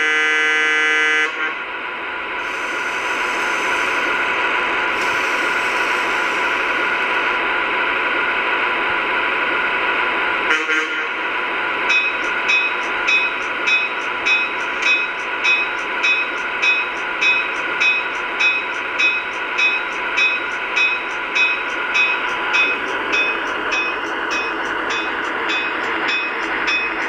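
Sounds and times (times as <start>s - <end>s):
electric locomotive hum: 0.0s - 27.0s
locomotive bell ringing: 11.9s - 27.0s.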